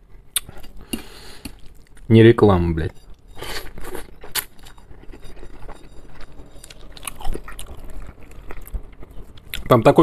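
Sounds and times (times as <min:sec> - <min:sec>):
slurping and chewing noodles: 0:03.2 - 0:09.8.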